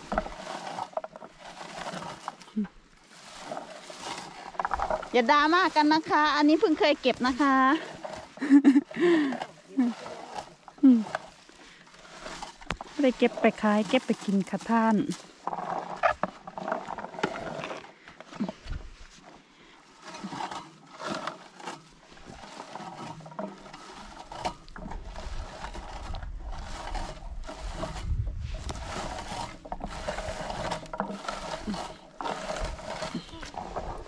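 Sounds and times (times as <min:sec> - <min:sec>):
leaves and clothing rustling: 0:00.0 - 0:34.0
short scrapes: 0:00.0 - 0:34.0
wind buffeting microphone: 0:27.4 - 0:29.2.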